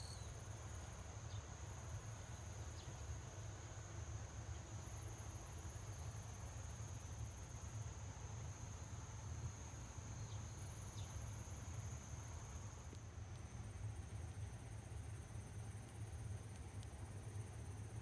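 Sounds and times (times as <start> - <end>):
high-pitched hiss: 0.0 - 13.8
insects chirring: 0.0 - 18.0.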